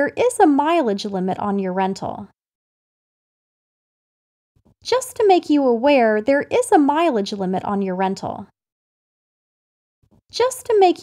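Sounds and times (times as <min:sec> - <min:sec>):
recorded voice speaking: 0:00.0 - 0:02.3, 0:04.8 - 0:08.5, 0:10.3 - 0:11.0.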